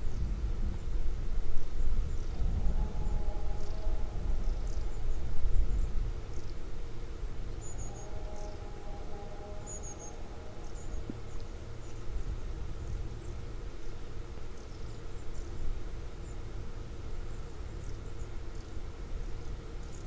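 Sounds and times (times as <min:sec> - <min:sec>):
faint distant hum: 0:00.0 - 0:20.0
small birds chirping: 0:03.5 - 0:06.8, 0:09.6 - 0:20.0.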